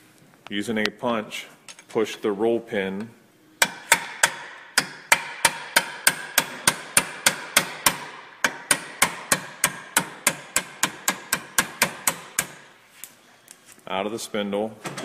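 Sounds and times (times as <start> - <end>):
hammer striking steel punch: 3.6 - 12.6.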